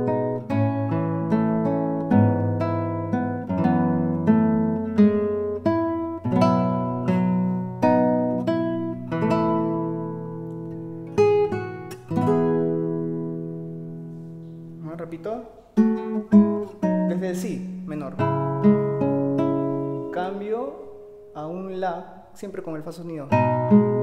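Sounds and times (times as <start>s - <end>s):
fingerstyle classical guitar: 0.0s - 21.5s, 23.1s - 24.0s.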